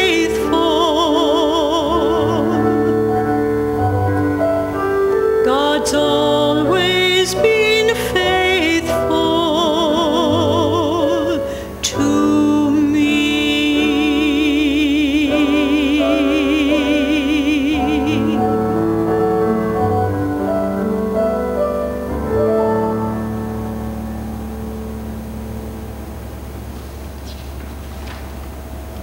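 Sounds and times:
woman singing a hymn: 0.0 - 3.5, 5.3 - 20.2
piano accompaniment: 0.0 - 29.0.

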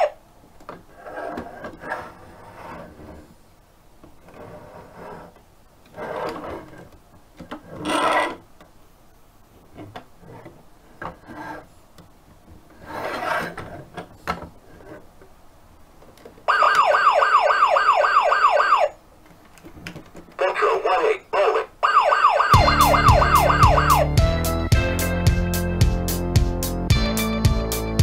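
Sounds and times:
plastic toy wheels rolling: 4.2 - 8.4
electronic toy siren wailing: 16.5 - 19.0, 21.8 - 24.2.

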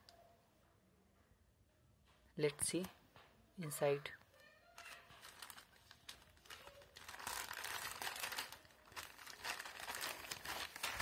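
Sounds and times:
plastic mailer bag crinkling: 4.8 - 11.0.

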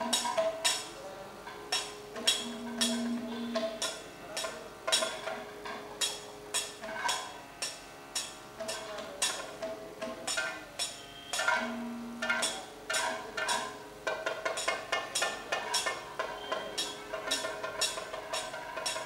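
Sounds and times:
ringing metal strikes: 1.7 - 8.4, 10.3 - 19.0
drum strokes: 11.3 - 19.0.

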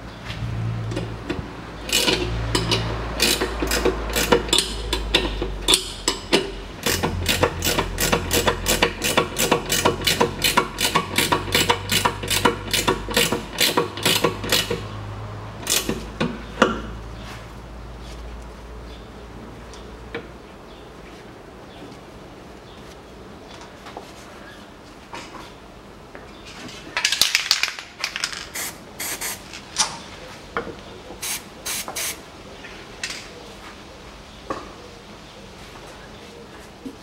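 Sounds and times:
low steady hum: 0.0 - 12.9
hand ratchet clicking: 1.9 - 14.8.

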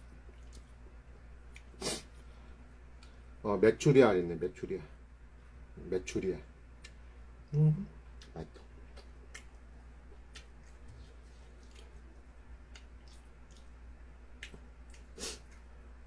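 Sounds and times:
steady low hum: 0.0 - 16.0
chopsticks clicking and chewing: 0.3 - 0.8, 8.2 - 13.8, 14.4 - 15.7.

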